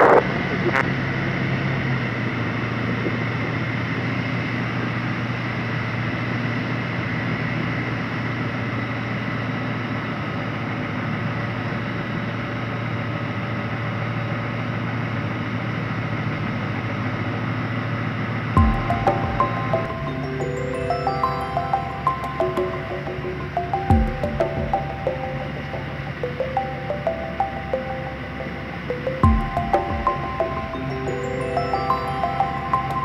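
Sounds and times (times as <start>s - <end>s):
aircraft engine idling drone: 0.0s - 33.0s
propeller and airflow noise: 0.0s - 33.0s.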